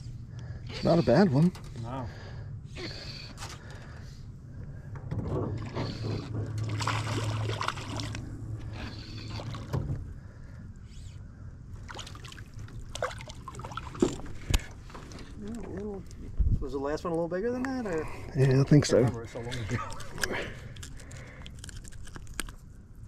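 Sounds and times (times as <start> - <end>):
steady low hum: 0.0 - 23.0
water splashing beside boat: 5.6 - 8.3, 11.8 - 14.8.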